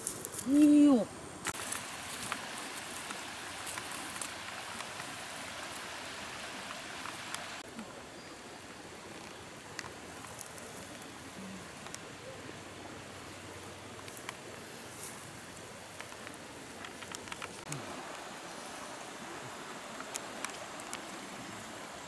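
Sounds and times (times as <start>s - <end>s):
river water flowing: 0.0s - 22.0s
faint ticks: 11.8s - 12.0s, 15.9s - 18.2s.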